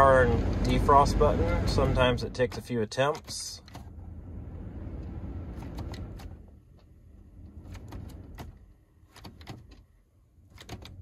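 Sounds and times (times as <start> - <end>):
low rumble: 3.9 - 8.4.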